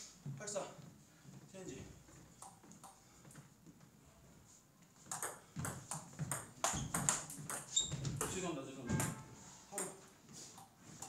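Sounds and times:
ping pong ball clicking on paddles: 2.4s - 3.0s, 5.0s - 8.4s
ball bouncing on table: 5.1s - 10.0s.

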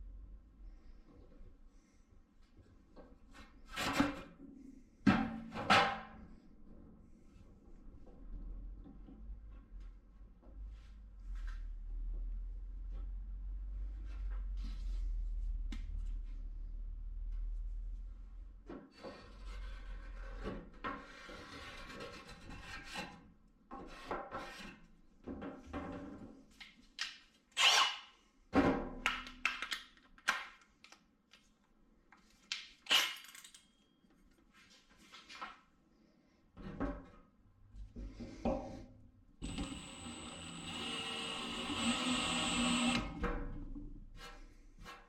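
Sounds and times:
cordless drill running: 39.4s - 43.2s.

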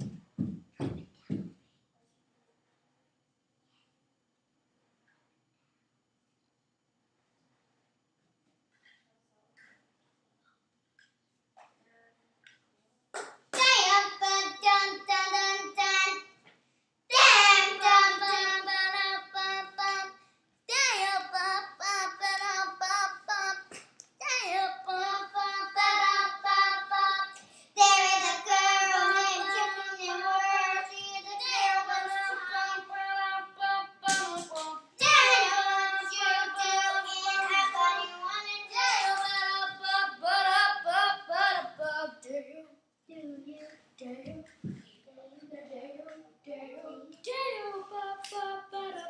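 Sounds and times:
child singing: 13.6s - 16.3s, 17.1s - 49.0s.

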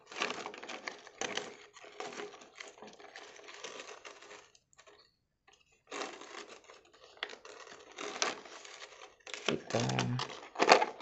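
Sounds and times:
plastic toy parts clicking: 9.4s - 11.0s.

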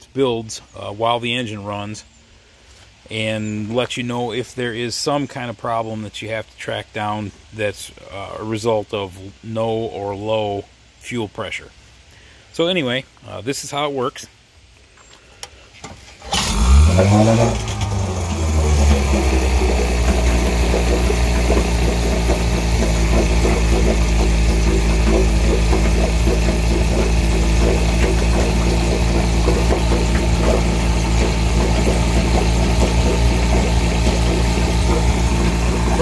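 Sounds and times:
outboard motor idling: 16.2s - 36.0s.

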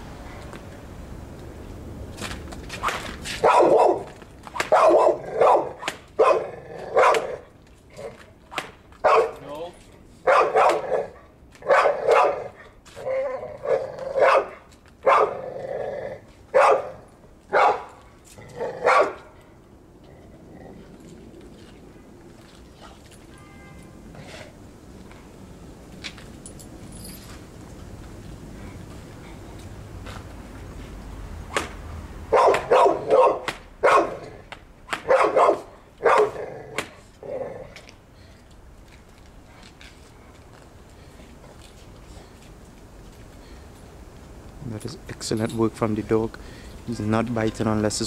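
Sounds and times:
dog barking: 3.4s - 4.1s, 4.7s - 7.4s, 9.0s - 9.4s, 10.2s - 12.6s, 13.6s - 15.4s, 16.6s - 17.9s, 18.8s - 19.3s, 32.3s - 34.3s, 35.0s - 36.4s.

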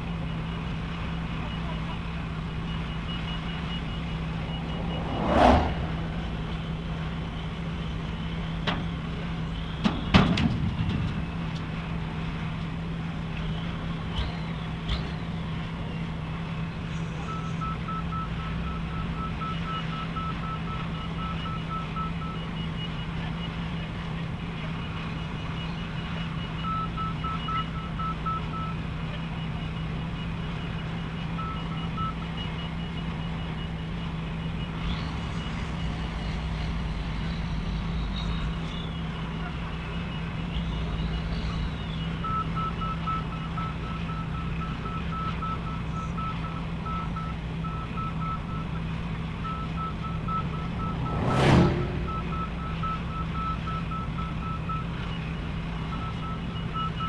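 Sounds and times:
heavy machinery droning: 2.6s - 9.9s, 49.4s - 54.5s
electronic warning beeps: 25.6s - 28.8s, 31.1s - 36.1s, 40.0s - 48.8s, 49.4s - 57.0s.

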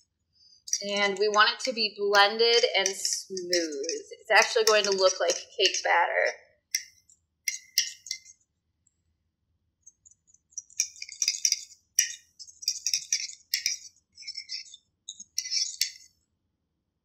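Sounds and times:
fork stirring batter in a mug: 0.7s - 5.9s, 6.8s - 8.4s, 9.9s - 16.1s.

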